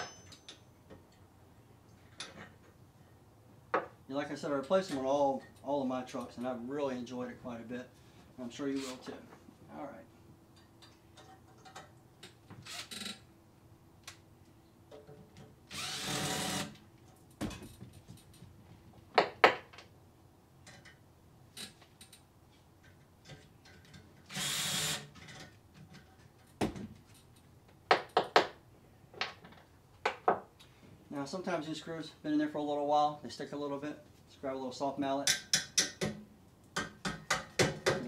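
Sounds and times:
cordless drill running: 15.7 - 16.7, 24.3 - 25.1.

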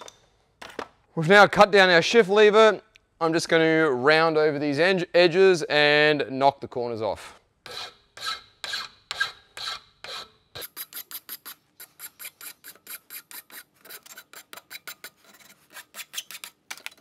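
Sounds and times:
file rasping on metal: 7.7 - 16.6.

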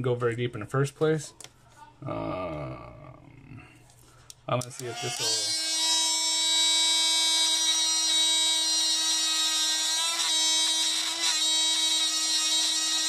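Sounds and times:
rotary tool grinding plastic: 4.7 - 13.0.

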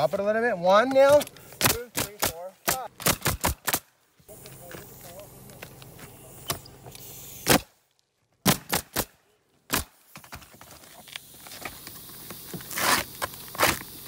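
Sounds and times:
nail gun clacks: 0.9 - 3.9
scuff: 10.4 - 13.9.

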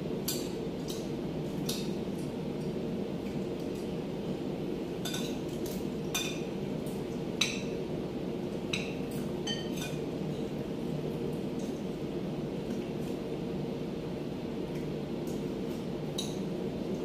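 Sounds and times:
cutlery clinking on plates: 5.0 - 5.4, 8.8 - 10.0.

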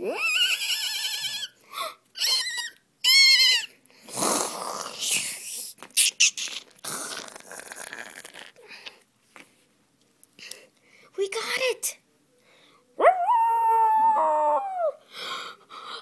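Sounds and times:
person squealing: 0.0 - 1.6, 13.3 - 15.0
person growling and snarling: 4.1 - 5.2, 6.8 - 8.6.

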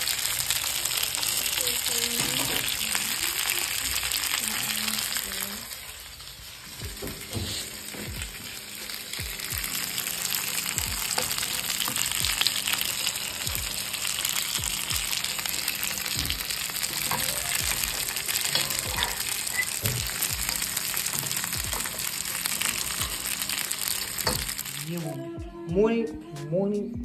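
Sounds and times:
food sizzling in a pan: 0.0 - 25.2
deep bass thumps of music: 6.8 - 8.4, 9.2 - 9.8, 10.8 - 11.2, 12.2 - 12.4, 13.5 - 13.8, 14.6 - 15.2, 16.1 - 16.6, 19.9 - 20.6, 21.6 - 21.9, 25.3 - 26.2.

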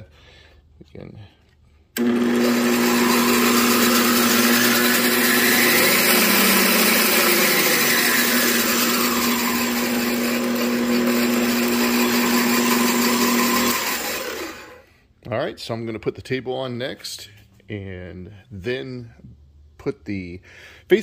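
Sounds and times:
band saw running: 2.0 - 14.8.

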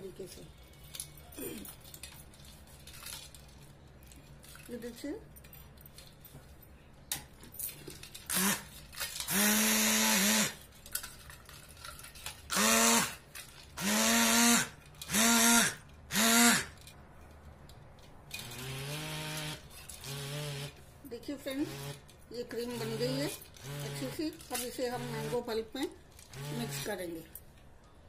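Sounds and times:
immersion blender motor whining: 8.3 - 8.6, 9.3 - 10.6, 12.5 - 13.2, 13.8 - 16.7.

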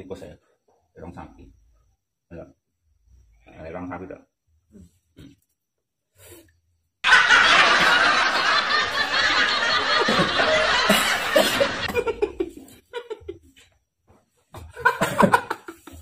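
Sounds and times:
laugh track: 7.0 - 13.5, 14.6 - 16.0.

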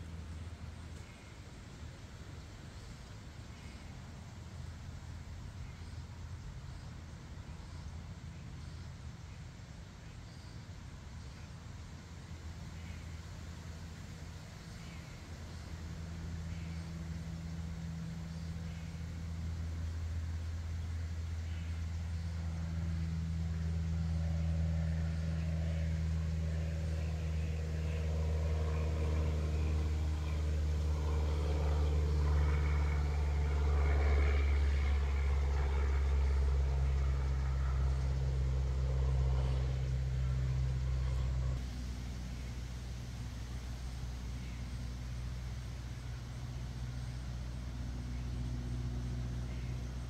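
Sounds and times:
motor engine humming: 11.4 - 50.0.

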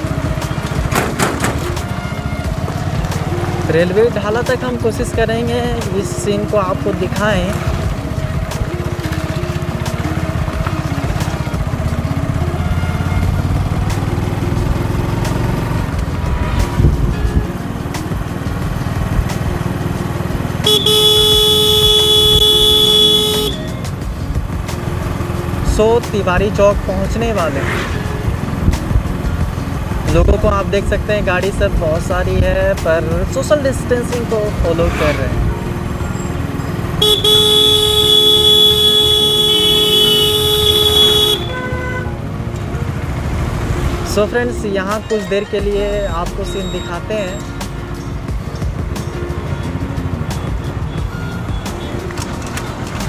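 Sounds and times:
vehicle engine running: 0.0 - 44.9
road traffic rumble: 0.0 - 53.0
horn blast: 20.6 - 23.8, 37.0 - 42.2.

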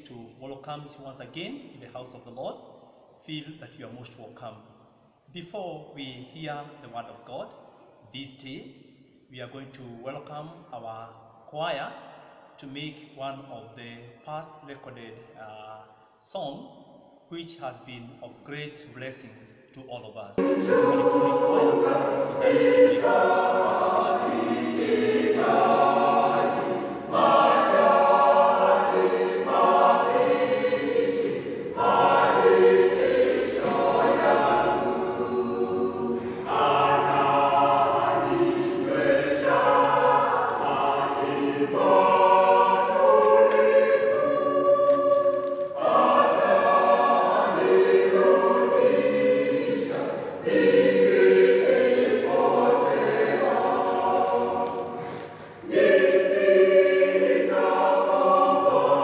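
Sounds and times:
choir singing: 20.4 - 59.0.

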